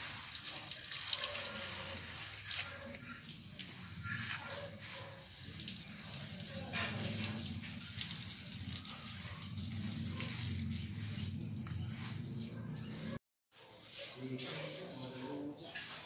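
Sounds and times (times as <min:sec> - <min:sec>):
running splashing water: 0:00.0 - 0:13.2
water drops ticking: 0:05.5 - 0:12.9.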